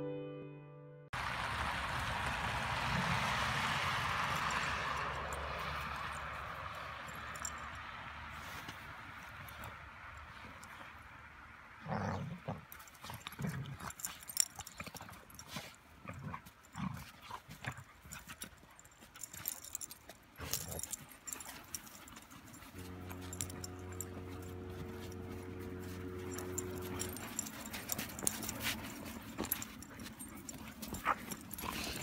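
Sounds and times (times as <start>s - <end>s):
paws crunching in snow: 2.2s - 11.2s, 12.4s - 32.0s
puppies growling: 19.2s - 32.0s.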